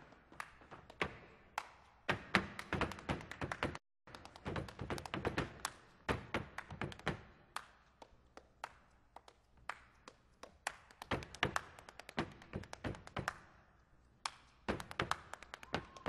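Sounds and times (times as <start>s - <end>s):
hand claps: 0.0s - 16.0s
hand slaps on chest and legs: 14.2s - 16.0s.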